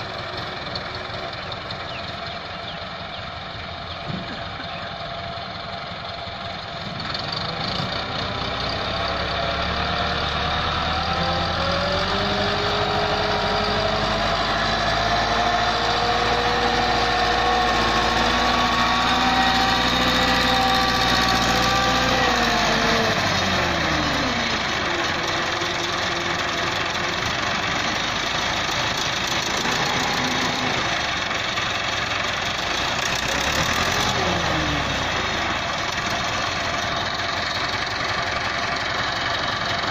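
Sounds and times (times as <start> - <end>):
tractor diesel engine revving: 0.0 - 39.9.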